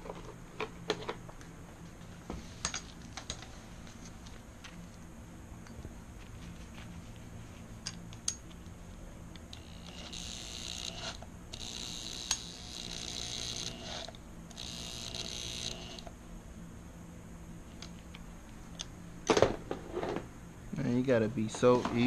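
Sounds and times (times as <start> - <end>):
electric drill whining: 9.5 - 16.1.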